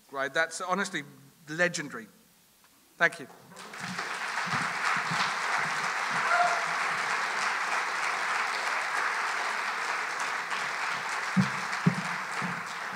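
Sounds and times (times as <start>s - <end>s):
audience applauding: 3.4s - 12.9s.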